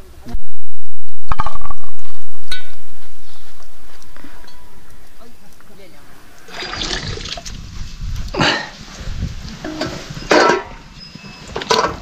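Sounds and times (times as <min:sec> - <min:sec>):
liquid sloshing into metal pot: 0:06.4 - 0:07.5.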